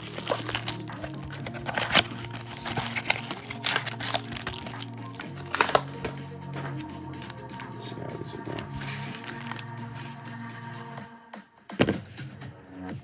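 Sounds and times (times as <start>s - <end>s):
foil wrappers crinkling: 0.0s - 6.1s, 8.5s - 10.0s
background music: 0.0s - 13.0s.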